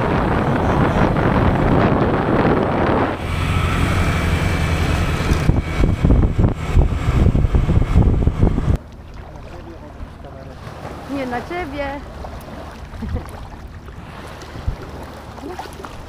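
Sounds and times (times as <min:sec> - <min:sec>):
wind buffeting microphone: 0:00.0 - 0:08.8, 0:09.5 - 0:16.0
scooter engine hum with whine: 0:00.0 - 0:08.9.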